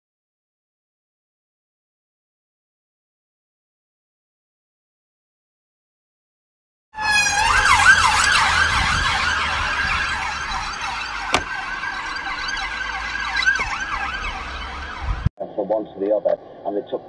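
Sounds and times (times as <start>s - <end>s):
police siren yelping: 7.0s - 15.3s.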